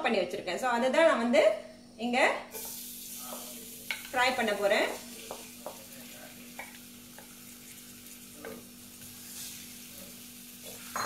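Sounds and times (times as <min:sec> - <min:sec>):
garlic sizzling in oil: 0:02.5 - 0:11.0
wooden spatula taps and scrapes: 0:02.6 - 0:04.2, 0:04.8 - 0:07.4, 0:08.4 - 0:09.6.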